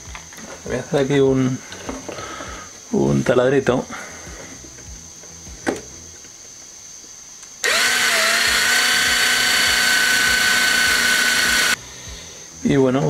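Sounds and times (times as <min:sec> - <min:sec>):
electric drill drilling plastic: 0:07.6 - 0:11.8.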